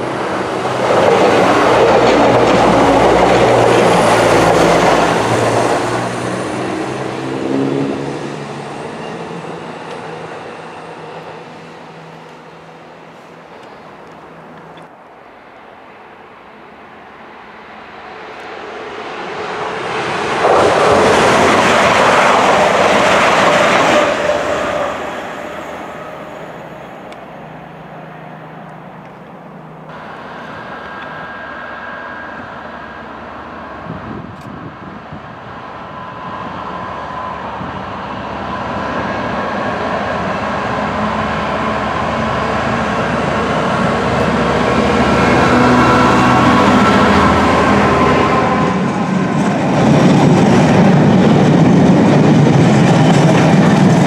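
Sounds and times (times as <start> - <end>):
diesel locomotive engine hum: 0.0 - 54.0
train rushing past: 0.0 - 54.0.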